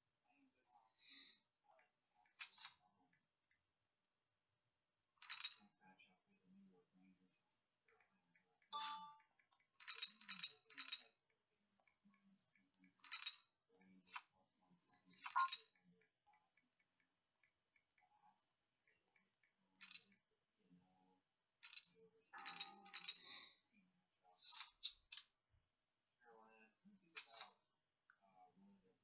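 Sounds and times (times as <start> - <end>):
poker chips clinking: 5.2 - 5.6.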